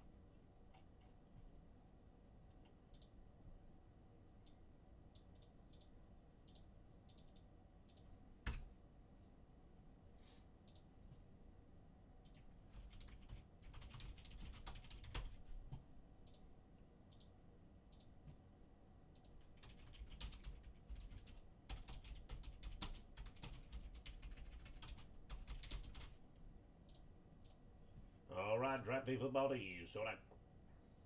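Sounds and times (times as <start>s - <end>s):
typing on computer keyboard: 12.2s - 16.4s, 19.2s - 26.2s.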